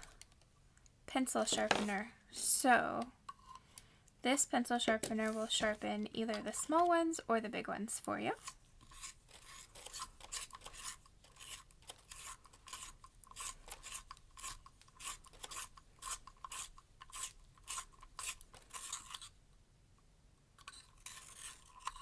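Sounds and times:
pencil sharpener rasping: 8.4s - 19.3s, 20.6s - 22.0s.

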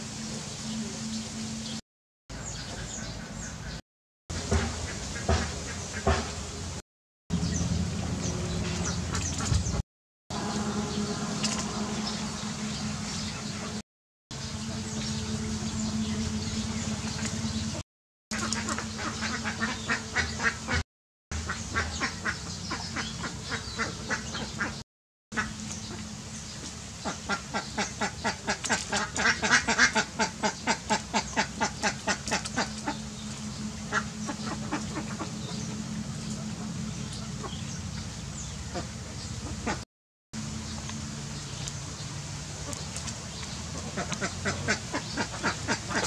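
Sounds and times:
steady low hum: 4.3s - 17.8s, 25.4s - 39.8s
ducks quacking: 18.3s - 20.8s, 21.4s - 24.8s, 27.0s - 37.7s, 43.7s - 46.0s.

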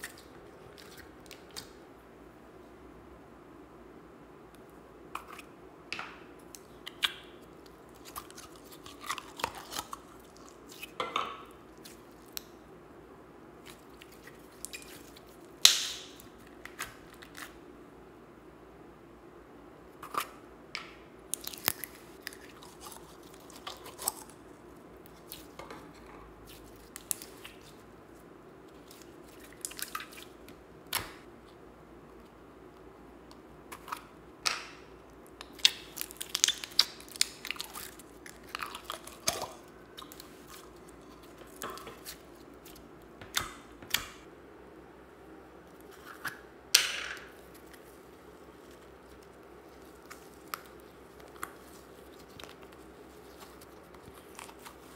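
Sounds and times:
slime squelching by hand: 11.6s - 12.5s, 13.6s - 17.6s, 21.3s - 25.6s, 26.4s - 31.2s, 35.3s - 44.2s, 47.3s - 54.9s.

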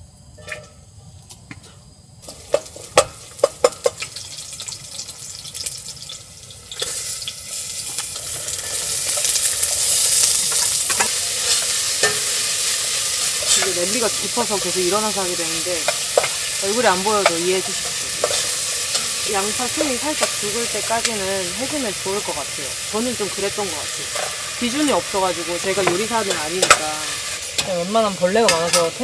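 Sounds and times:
food sizzling in hot oil: 2.2s - 29.0s.

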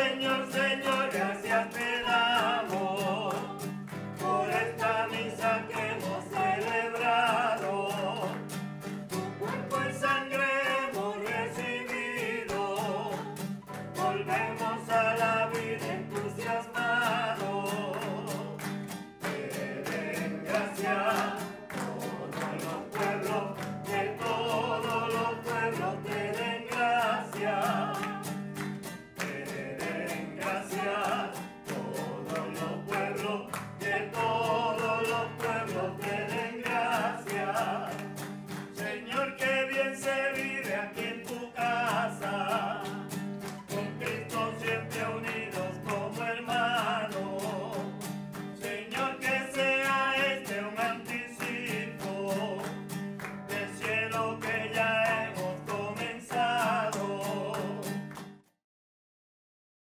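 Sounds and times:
strummed guitar: 0.0s - 58.5s
choir singing a hymn: 9.6s - 13.3s, 14.0s - 18.3s, 19.2s - 28.4s, 29.2s - 38.0s, 48.7s - 49.2s.

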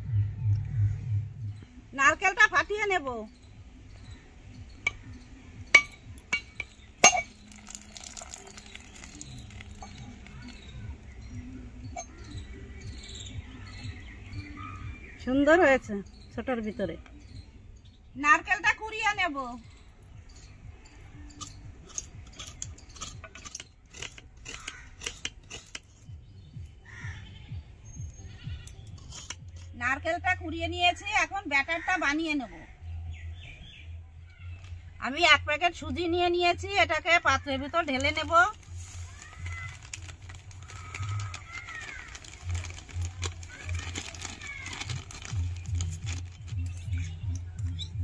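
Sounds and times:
coconut being struck: 5.8s - 8.4s
coconut scraping on a grater: 22.3s - 25.9s.

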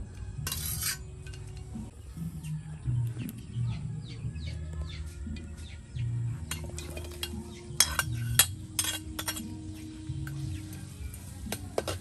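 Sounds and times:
metal spatula scraping a plate: 0.4s - 1.7s, 6.5s - 9.6s.

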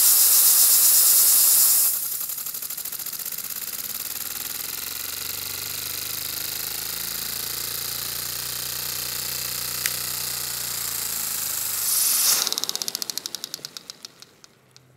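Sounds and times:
hiss of drawn air: 0.0s - 2.2s, 10.7s - 14.5s
small engine clattering: 0.0s - 14.9s.

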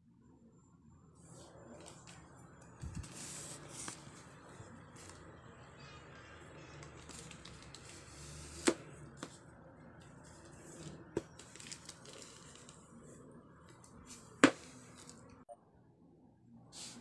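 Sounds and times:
plastic mailer crinkling: 11.2s - 12.8s.

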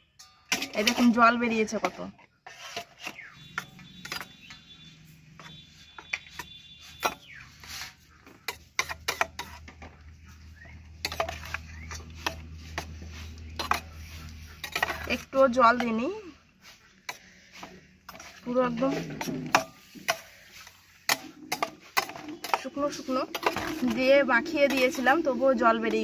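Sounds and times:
metal spatula scraping steel bowl: 0.2s - 26.0s.

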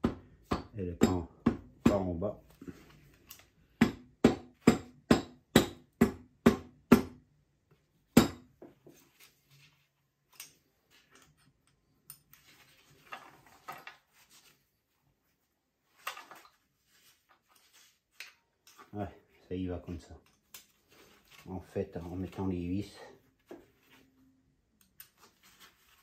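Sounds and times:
hammer tapping on metal: 0.0s - 2.1s, 3.8s - 7.2s.

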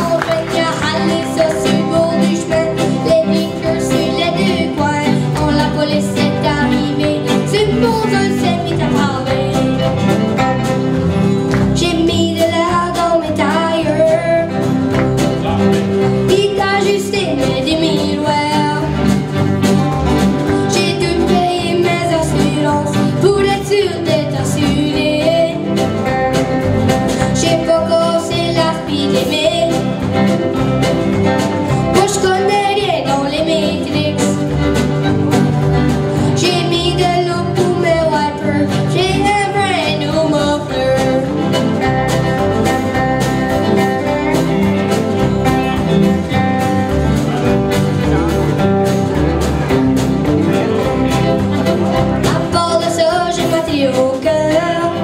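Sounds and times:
boy singing: 0.0s - 10.1s, 11.7s - 14.8s, 15.6s - 19.2s, 20.4s - 26.2s, 27.1s - 30.3s, 31.2s - 34.6s, 36.1s - 42.4s, 51.6s - 55.0s
fiddle: 0.0s - 55.0s
strummed acoustic guitar: 0.0s - 55.0s.

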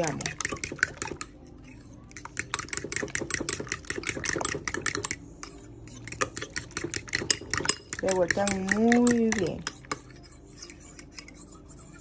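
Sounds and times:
fork clicking against bowl: 2.1s - 11.5s.

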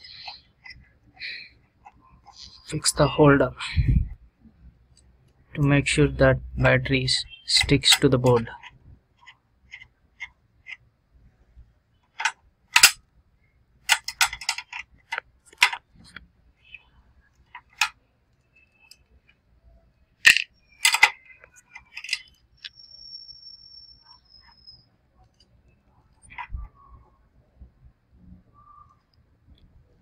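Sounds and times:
thin high whistle: 22.7s - 24.9s.

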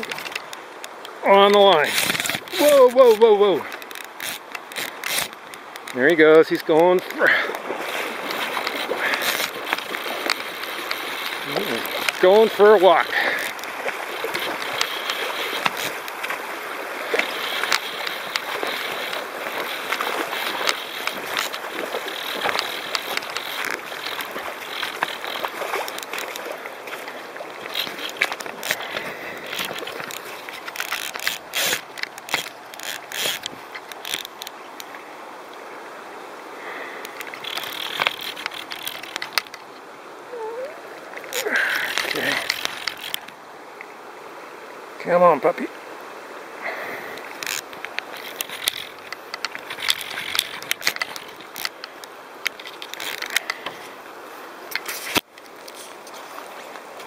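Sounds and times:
river water washing: 0.0s - 57.0s
fishing reel ratcheting and clicking: 1.8s - 6.0s, 8.3s - 16.3s, 17.2s - 26.5s, 27.6s - 34.5s, 37.1s - 39.6s, 41.3s - 43.3s, 47.3s - 53.6s.

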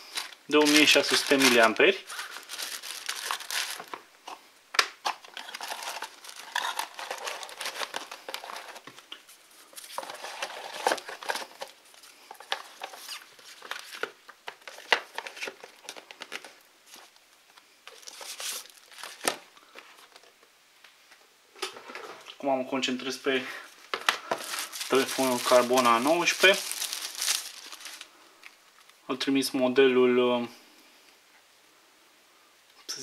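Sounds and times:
plastic bag crinkling: 0.0s - 4.1s, 5.1s - 17.1s, 17.9s - 20.3s, 24.0s - 29.0s.

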